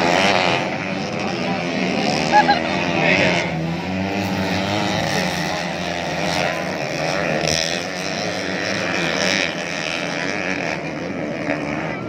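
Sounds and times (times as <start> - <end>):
motocross bike engines revving: 0.0 - 12.0.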